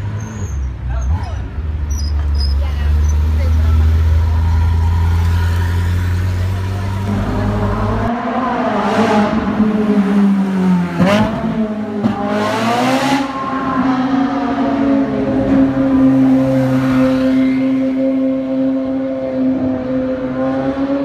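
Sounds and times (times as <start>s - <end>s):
car engine rumbling: 0.0s - 21.0s
cars accelerating past: 2.2s - 21.0s.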